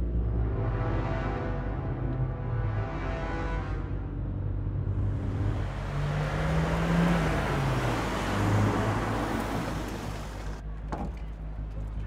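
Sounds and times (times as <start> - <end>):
road noise: 0.0 - 12.0
car engine hum: 4.8 - 11.6.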